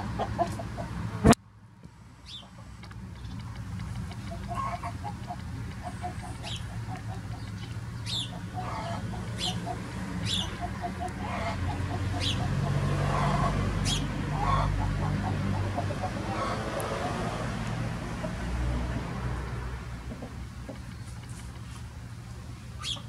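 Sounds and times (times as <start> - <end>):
chickens clucking softly: 0.0 - 1.3, 2.3 - 19.1, 20.0 - 21.6
chicken chirps: 4.1 - 17.2, 22.8 - 23.0.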